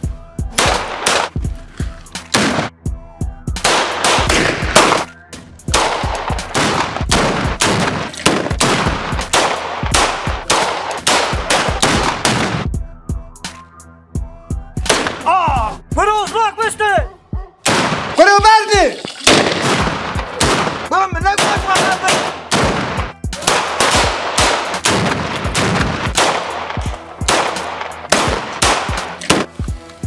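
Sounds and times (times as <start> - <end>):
rapid gunfire: 3.6 - 5.1, 5.7 - 12.6, 19.3 - 29.5.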